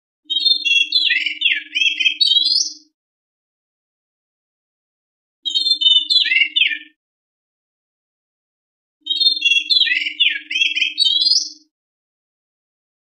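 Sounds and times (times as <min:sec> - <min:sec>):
bird singing whistled phrases: 0:00.3 - 0:02.9, 0:05.5 - 0:07.0, 0:09.0 - 0:11.7.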